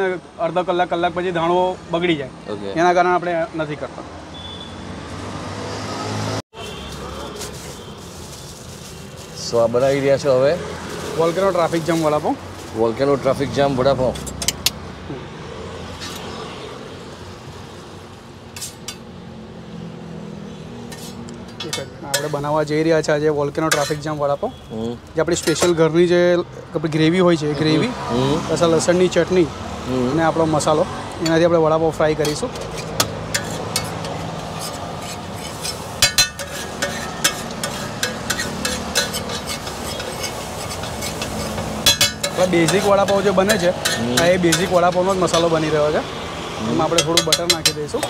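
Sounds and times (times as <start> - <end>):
traffic hum: 0.0 - 48.0
metal spatula scraping on griddle: 6.6 - 12.7, 15.9 - 16.5, 18.5 - 19.1, 20.5 - 24.6, 25.2 - 26.0, 32.2 - 45.9, 46.6 - 48.0
low frying sizzle: 6.9 - 15.0, 32.0 - 48.0
cooking utensils clinking: 14.0 - 14.8, 20.9 - 22.7, 23.6 - 24.3, 25.2 - 26.0, 32.2 - 45.9, 46.7 - 48.0.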